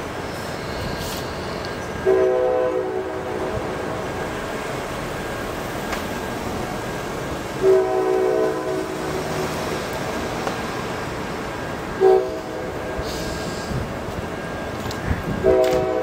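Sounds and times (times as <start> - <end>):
diesel engine and train running: 0.0 - 16.0
locomotive air horn blasts: 0.7 - 4.0, 7.6 - 9.6, 12.0 - 13.8, 15.4 - 16.0.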